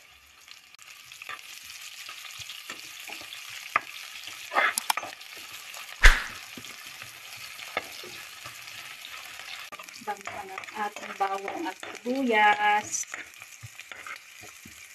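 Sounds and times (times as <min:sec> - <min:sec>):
garlic and onion sizzling in oil: 0:00.0 - 0:14.9
spatula scraping pan: 0:06.5 - 0:14.9.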